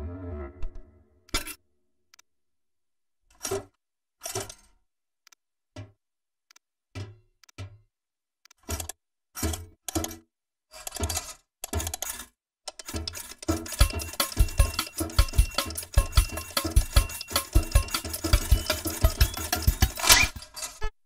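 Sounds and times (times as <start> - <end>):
cartoon crank turning: 10.8 - 20.9
fast rhythmic tune with beat: 13.4 - 20.4.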